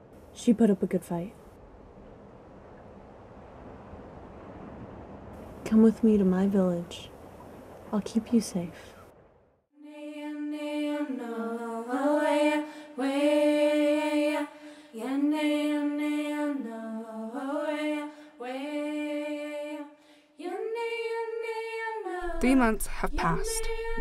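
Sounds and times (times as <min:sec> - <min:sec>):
woman singing unaccompanied: 0:09.8 - 0:24.0.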